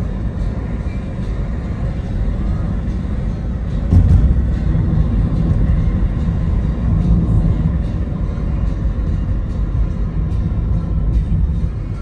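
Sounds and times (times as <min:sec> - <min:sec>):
car interior road rumble: 0:00.0 - 0:12.0.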